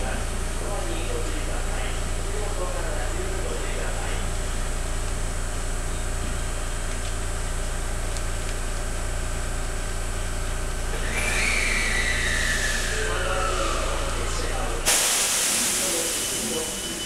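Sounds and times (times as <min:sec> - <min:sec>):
electric train humming: 0:10.6 - 0:17.0
high whine falling in pitch: 0:10.9 - 0:14.9
loud hiss: 0:13.7 - 0:16.7.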